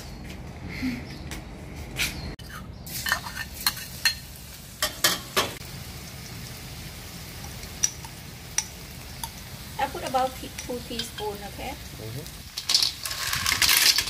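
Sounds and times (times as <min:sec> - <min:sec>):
spoon clinking and scraping wok: 0:02.4 - 0:05.6, 0:10.4 - 0:11.5
garlic sizzling in hot oil: 0:02.9 - 0:14.0.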